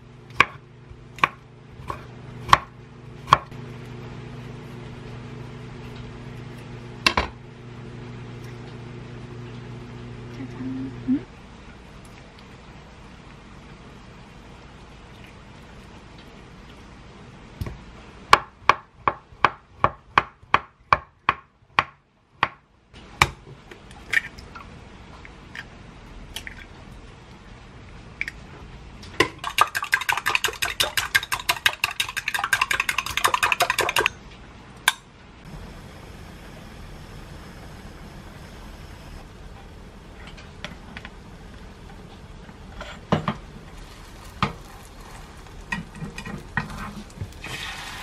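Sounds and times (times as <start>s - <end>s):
eggs beaten in glass cup: 29.2s - 34.2s.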